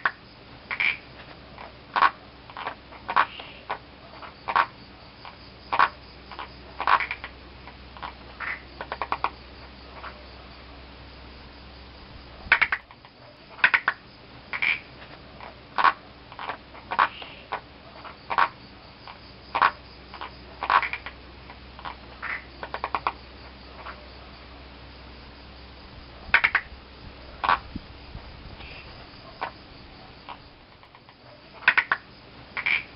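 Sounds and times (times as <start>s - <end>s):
frog clicking pulses: 0.0s - 9.4s, 12.5s - 24.0s, 26.3s - 26.7s, 27.4s - 27.8s, 30.2s - 32.9s
frogs croaking: 0.0s - 32.9s
low steady hum: 0.0s - 32.9s.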